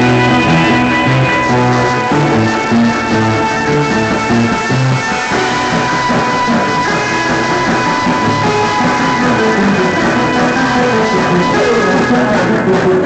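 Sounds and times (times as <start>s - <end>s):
drum kit: 0.0s - 13.0s
electric guitar: 0.0s - 13.0s
rock band playing live: 0.0s - 13.0s.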